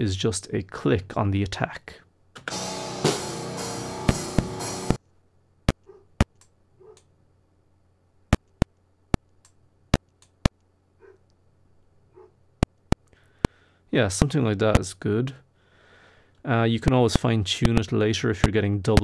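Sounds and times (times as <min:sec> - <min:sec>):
drum kit playing: 0:02.4 - 0:05.0.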